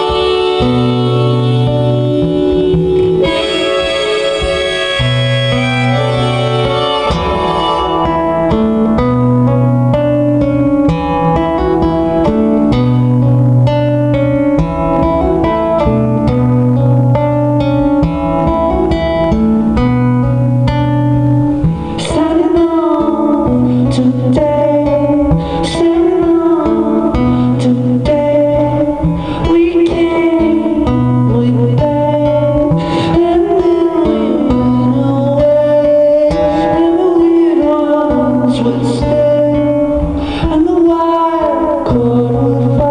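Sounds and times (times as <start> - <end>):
person singing: 0.0 - 10.8, 21.9 - 42.9
guitar chords: 0.0 - 42.9.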